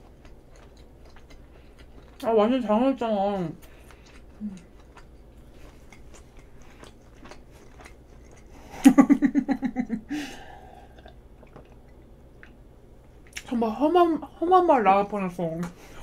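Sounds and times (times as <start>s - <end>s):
woman chewing: 0.0s - 2.7s, 3.5s - 9.6s, 10.3s - 13.5s
woman giggling: 8.7s - 10.4s
sipping and swallowing: 10.7s - 12.6s.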